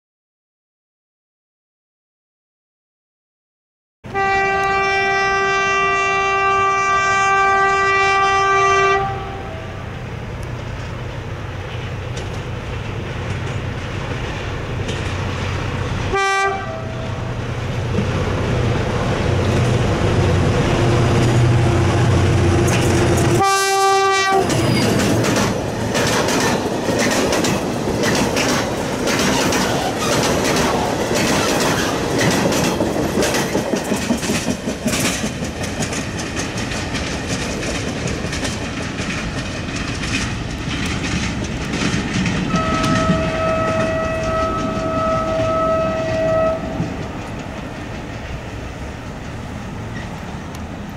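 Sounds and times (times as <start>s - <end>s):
locomotive horn blasts: 4.1s - 9.9s, 16.1s - 17.2s, 23.2s - 24.8s, 42.5s - 47.0s
train wheels clacking over rail joints: 10.4s - 16.7s, 21.1s - 50.9s
diesel engine drone: 16.8s - 23.5s.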